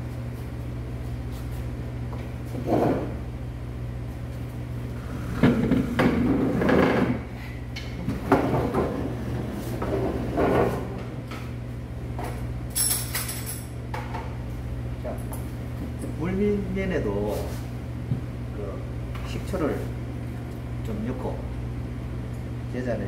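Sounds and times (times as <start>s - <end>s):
steady low hum: 0.0s - 23.0s
wooden chairs scraping on concrete: 2.5s - 3.2s, 5.0s - 7.3s, 8.1s - 11.1s.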